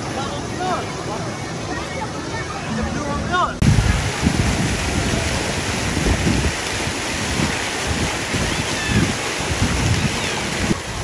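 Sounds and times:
water rushing down a slide: 0:03.6 - 0:11.0
wind buffeting microphone: 0:03.6 - 0:11.0.

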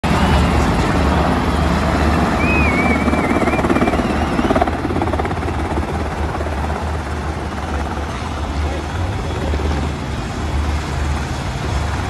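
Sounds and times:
helicopter rotor beating: 0:00.0 - 0:12.0
thin wavering whistle: 0:02.3 - 0:04.8.

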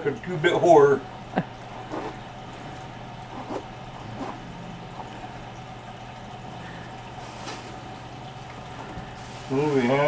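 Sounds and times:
steady low hum: 0:00.0 - 0:10.0
zipper opening: 0:01.8 - 0:02.2, 0:03.3 - 0:04.4.

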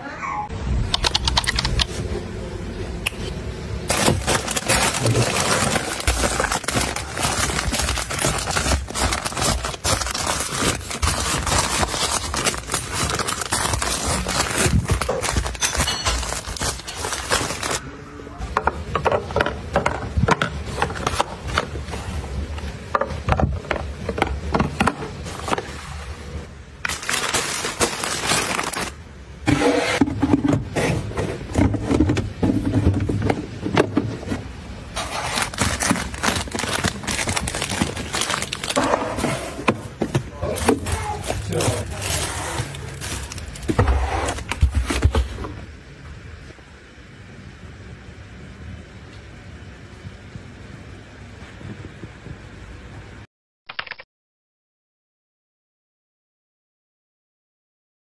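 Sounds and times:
plastic packs rustling and crinkling: 0:03.8 - 0:17.8, 0:19.2 - 0:29.0, 0:29.8 - 0:45.7.

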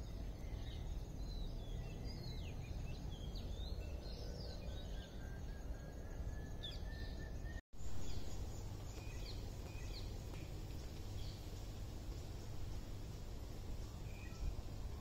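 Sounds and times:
small birds chirping: 0:06.6 - 0:15.0.

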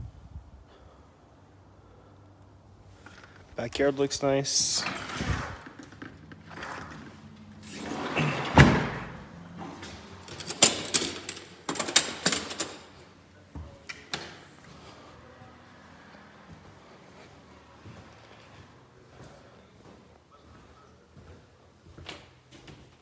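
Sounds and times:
sliding glass door rolling shut: 0:04.8 - 0:12.7.

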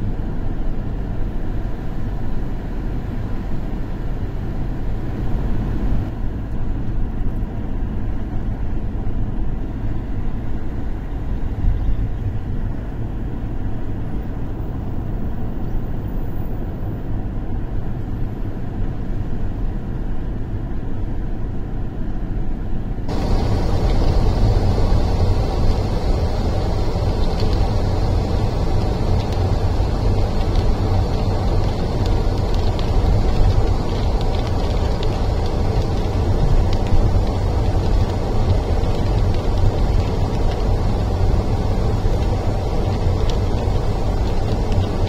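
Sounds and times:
car driving on wet road: 0:00.0 - 0:20.5, 0:23.1 - 0:45.0
loud hiss: 0:23.1 - 0:33.9.

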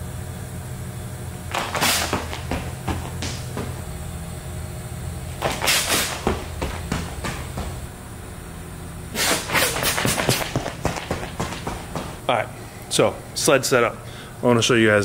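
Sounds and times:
steady low hum: 0:00.0 - 0:15.0
running shoes striking rubber track: 0:01.5 - 0:04.1, 0:05.3 - 0:08.0, 0:09.2 - 0:12.3.

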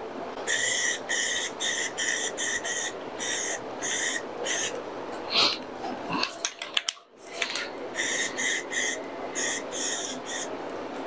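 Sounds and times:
aerosol spray can bursts: 0:08.0 - 0:10.5.

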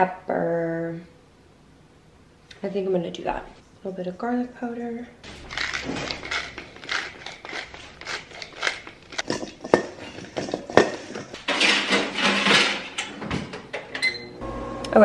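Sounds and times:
tongs tossing potatoes in metal bowl: 0:05.3 - 0:11.5.

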